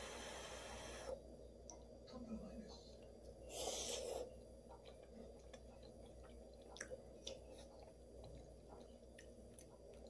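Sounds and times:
breath hiss: 0:00.0 - 0:01.2, 0:03.5 - 0:04.3
chewing mouth clicks: 0:04.7 - 0:10.0.

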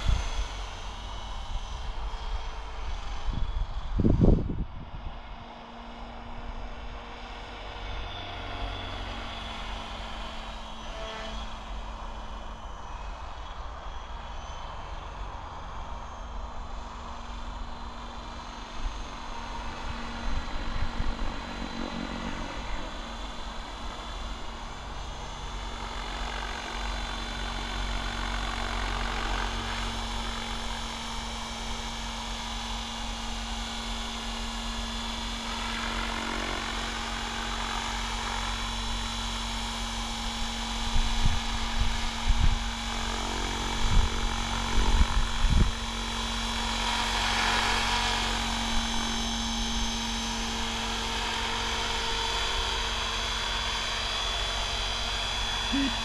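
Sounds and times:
rc helicopter rotor whine: 0:00.0 - 0:56.0.

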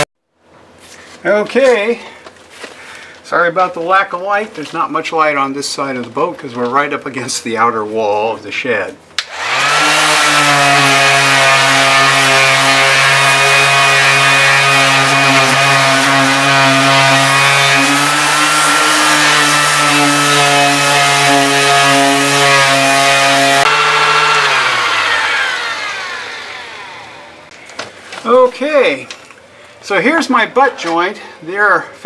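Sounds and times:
electric sander running: 0:09.2 - 0:27.5.

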